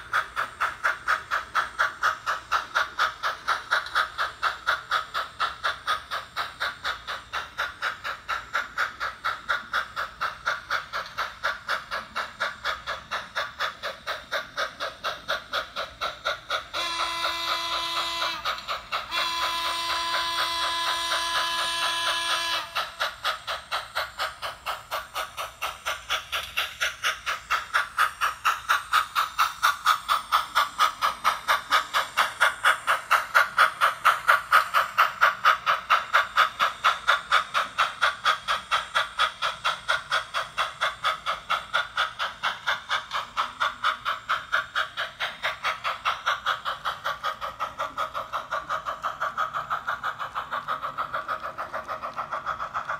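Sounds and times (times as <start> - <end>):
steam locomotive exhaust chuffing: 0.0 - 52.9
chorded steam whistle: 16.6 - 23.2.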